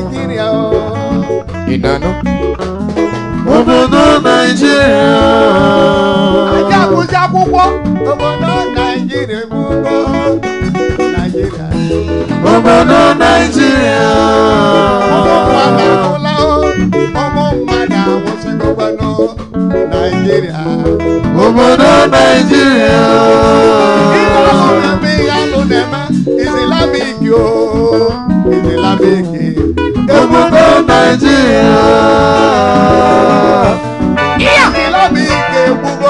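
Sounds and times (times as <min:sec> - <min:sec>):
drum kit: 0:00.0 - 0:36.0
electric guitar: 0:00.0 - 0:36.0
voices singing: 0:03.4 - 0:07.1, 0:11.2 - 0:36.0.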